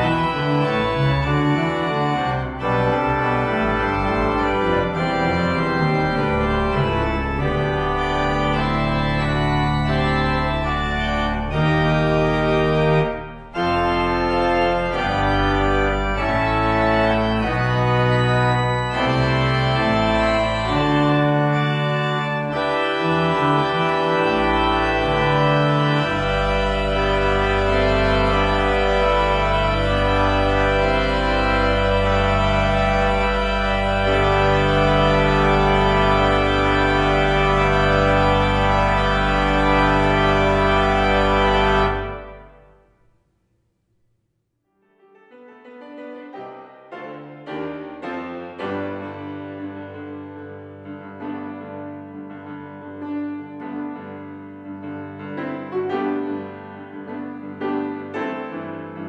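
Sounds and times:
church organ chords: 0.0s - 43.0s.

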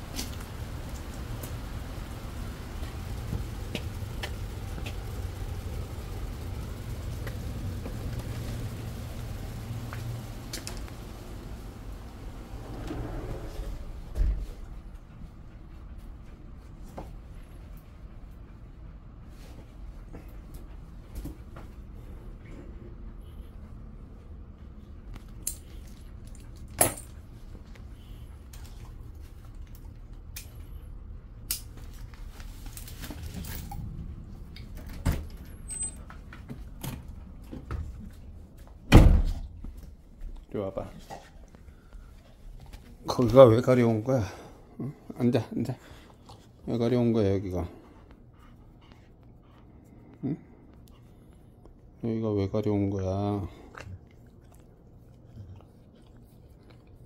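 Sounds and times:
outside background noise: 0.0s - 52.6s
low steady hum: 0.0s - 57.0s
door shutting with heavy thump: 38.9s - 39.4s.

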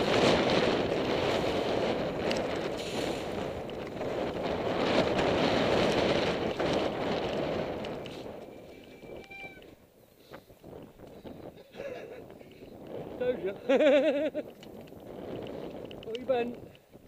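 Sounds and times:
bike tyres rolling on dirt: 0.0s - 17.0s
wind on microphone: 0.0s - 17.0s
brief high squeal: 8.9s - 9.7s.

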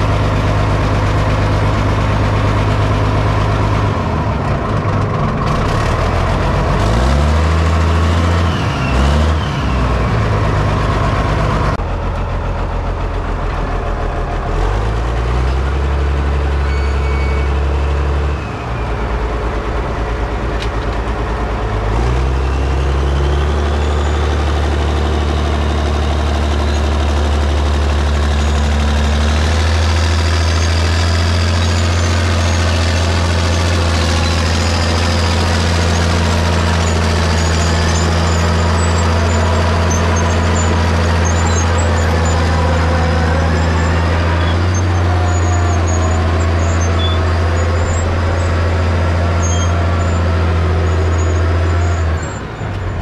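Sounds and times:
track loader diesel engine revving: 0.0s - 53.0s.

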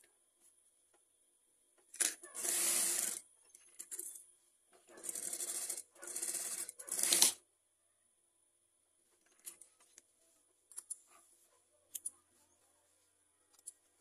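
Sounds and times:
sewing machine stitching: 2.0s - 4.1s, 4.9s - 7.4s.

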